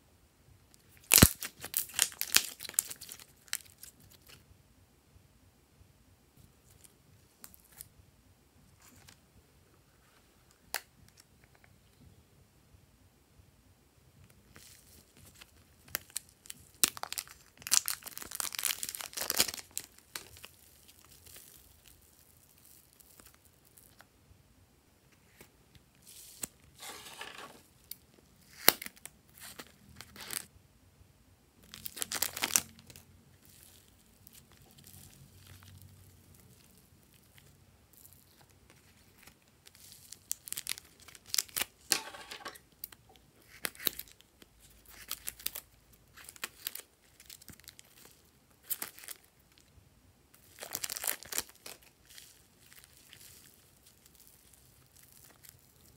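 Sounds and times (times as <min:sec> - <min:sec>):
plastic packets crinkling: 0:00.9 - 0:04.4, 0:14.6 - 0:24.0, 0:31.6 - 0:49.6, 0:50.4 - 0:55.9.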